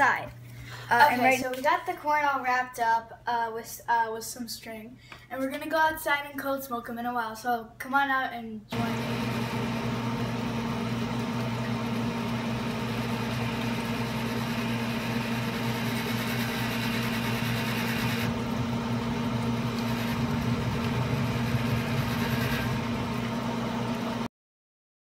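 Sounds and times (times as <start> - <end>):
fan motor humming: 8.7 - 24.3.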